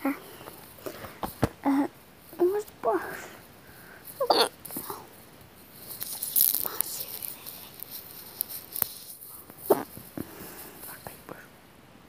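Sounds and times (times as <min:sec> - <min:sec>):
clicks rattles and rustles: 0:04.6 - 0:10.3.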